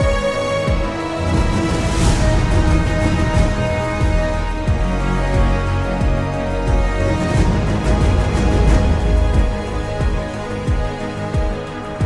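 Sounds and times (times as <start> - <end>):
sustained orchestral chords: 0.0 - 12.0
deep drum hits: 1.2 - 5.5.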